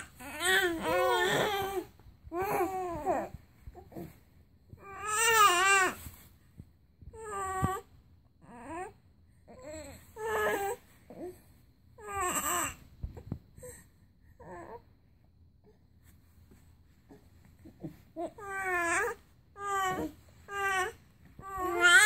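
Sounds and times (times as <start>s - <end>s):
babies cooing and squealing: 0.0s - 3.4s, 18.3s - 22.0s.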